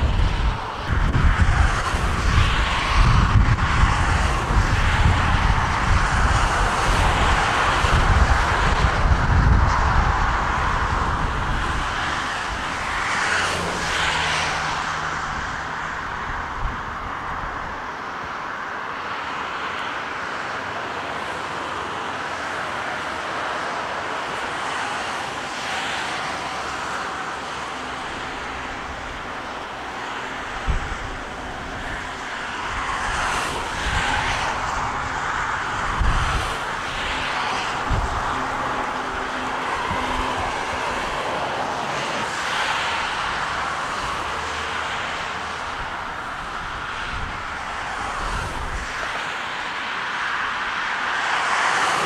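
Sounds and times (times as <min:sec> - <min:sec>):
wind buffeting microphone: 0:00.0 - 0:17.9, 0:27.4 - 0:49.2
jet engines running: 0:00.0 - 0:52.0.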